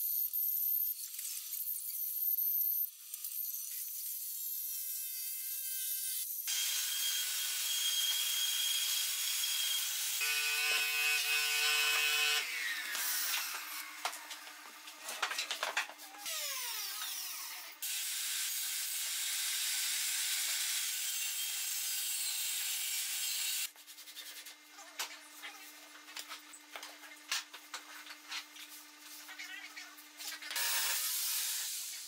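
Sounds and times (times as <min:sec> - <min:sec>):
clicks and handling noise: 0:13.3 - 0:16.2
cordless drill driving a screw: 0:30.6 - 0:31.9.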